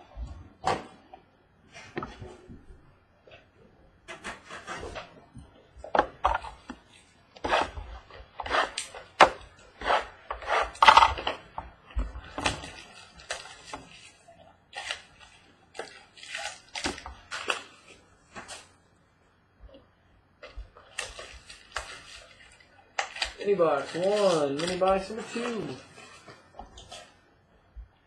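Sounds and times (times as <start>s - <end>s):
plastic wrap crinkling: 6.4s - 18.8s, 20.4s - 27.2s.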